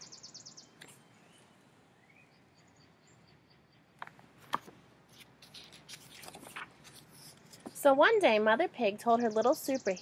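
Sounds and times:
book pages rustling: 4.0s - 7.8s.

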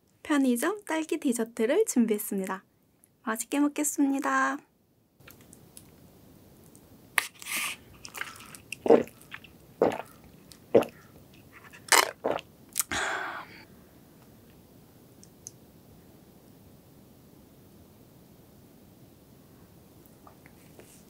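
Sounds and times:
breath hiss or slurp: 7.2s - 11.0s
sipping through straw: 7.2s - 11.0s
gulps swallowing: 8.0s - 11.1s, 11.7s - 12.4s.

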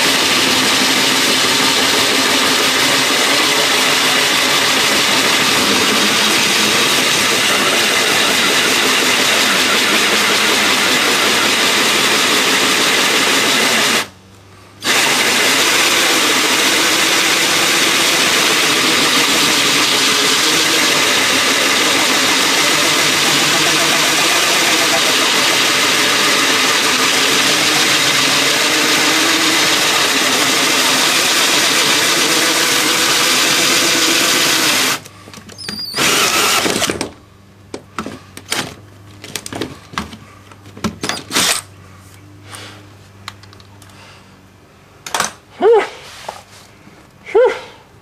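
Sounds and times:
drill cutting with hole saw: 0.0s - 14.1s, 14.8s - 35.0s, 35.7s - 37.0s, 41.1s - 41.6s.

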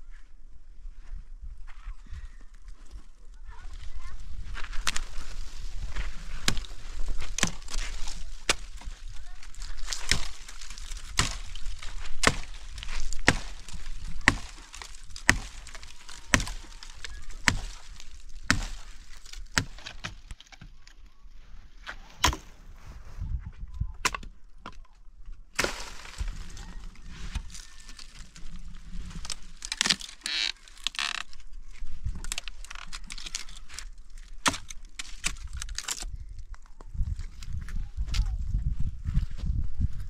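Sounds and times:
hand tool chopping strikes: 11.2s - 11.5s, 12.2s - 12.6s, 13.2s - 16.7s, 18.5s - 18.9s.

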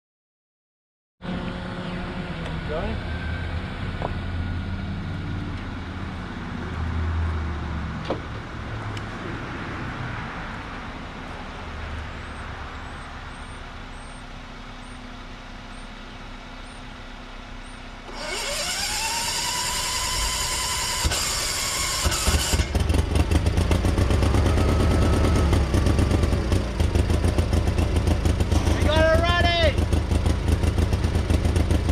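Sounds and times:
starter motor whine: 18.0s - 22.9s
engine turning over: 18.0s - 31.9s.

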